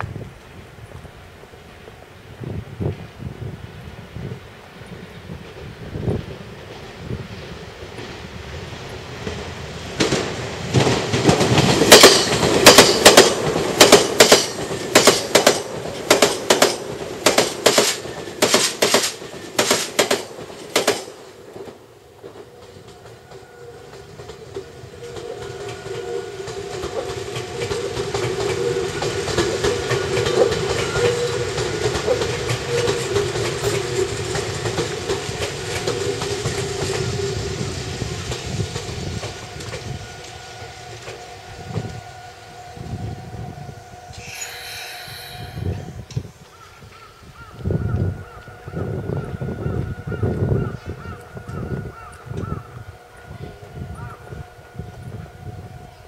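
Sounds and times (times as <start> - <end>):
train rumble and motor hum: 0.0 - 46.4, 47.5 - 56.0
train wheels clattering over joints: 9.2 - 37.3.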